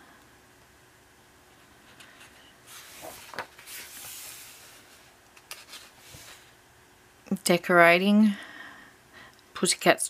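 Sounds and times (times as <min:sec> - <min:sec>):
paper page rustling: 0:01.9 - 0:06.5.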